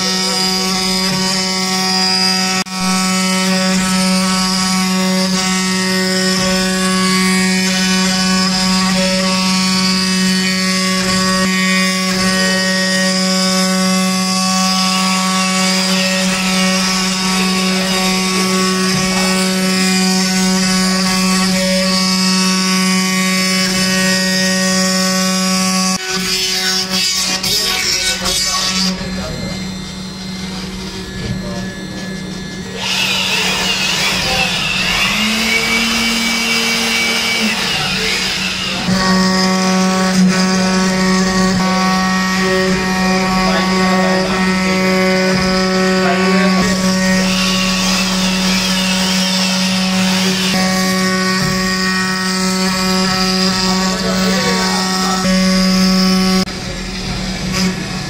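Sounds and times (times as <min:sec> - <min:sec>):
router spindle whining: 0:00.0 - 0:58.0
wood carving machine hum: 0:00.0 - 0:58.0.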